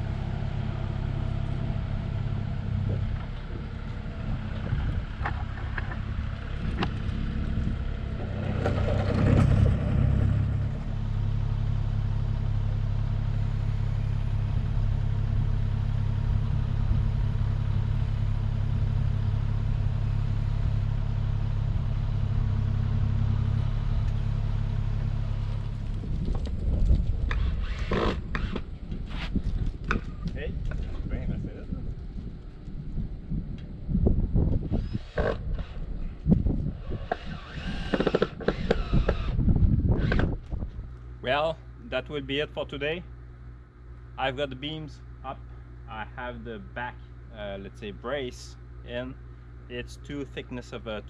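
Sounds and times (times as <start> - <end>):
excavator diesel engine running: 0.0 - 29.9.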